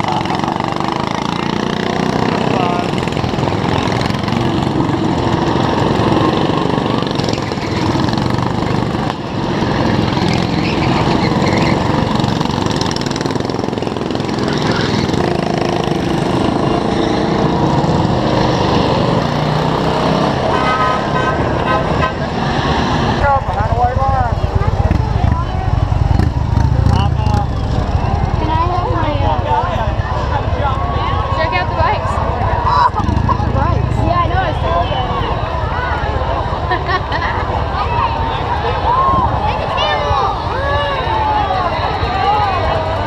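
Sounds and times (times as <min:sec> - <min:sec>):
go-kart engines running: 0:00.0 - 0:43.0
horn toots: 0:20.0 - 0:22.6.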